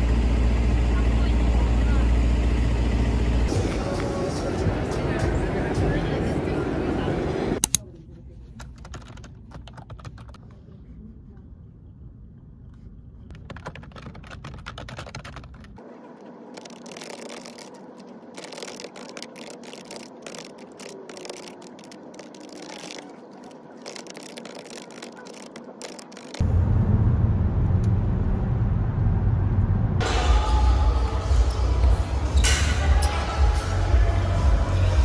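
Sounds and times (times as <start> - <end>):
typing on computer keyboard: 8.6 - 10.4, 13.3 - 15.8, 16.6 - 26.4
low rumble: 26.4 - 35.0.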